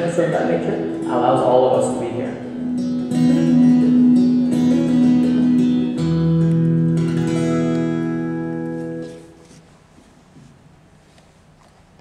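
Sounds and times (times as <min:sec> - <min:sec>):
plucked string music: 0:00.0 - 0:09.6.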